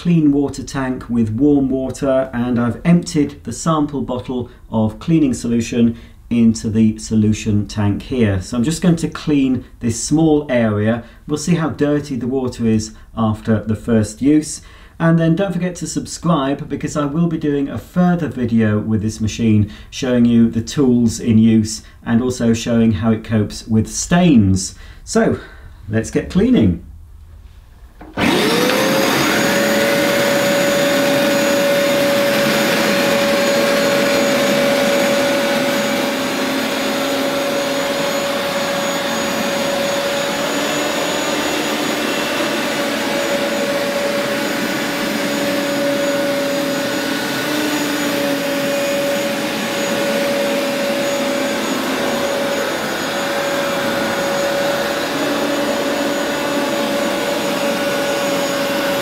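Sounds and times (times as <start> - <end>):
carpet washer motor whine: 28.0 - 59.0
suction rushing: 28.2 - 59.0.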